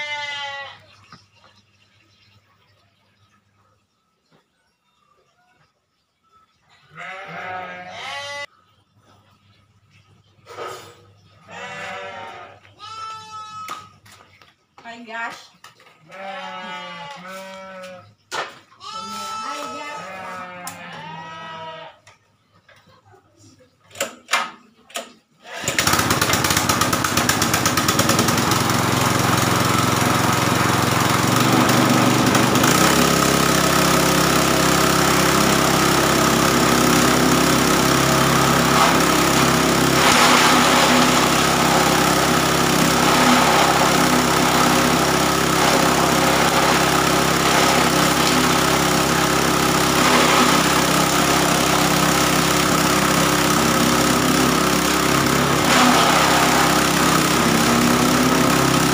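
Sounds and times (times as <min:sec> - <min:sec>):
grass chopper cutting grass: 0:18.9 - 0:21.6, 0:25.5 - 0:58.9
engine pull-start: 0:25.6 - 0:58.9
petrol engine running: 0:25.7 - 0:58.9.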